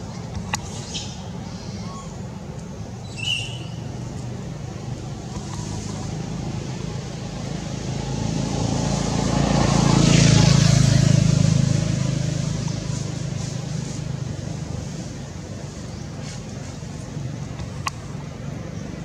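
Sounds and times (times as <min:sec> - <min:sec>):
vehicle driving past: 0:05.0 - 0:15.1.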